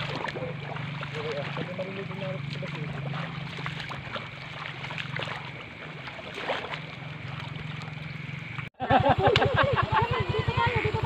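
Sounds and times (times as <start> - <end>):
footsteps splashing through water: 0.0 - 8.7
low hum: 0.0 - 11.0.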